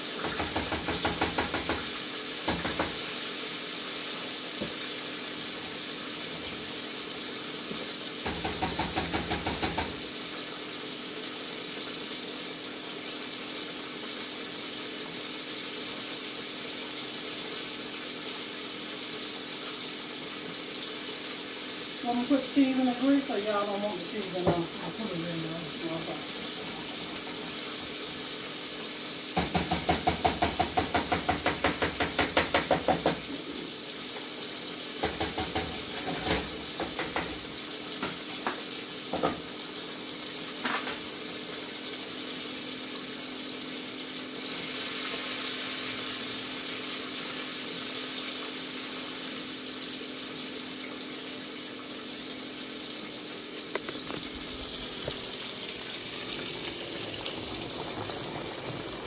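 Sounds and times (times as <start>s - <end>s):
food sizzling in a pan: 0.0s - 59.0s
spoon knocking against pan: 0.2s - 3.0s, 8.2s - 10.0s, 29.4s - 33.3s, 35.0s - 37.4s.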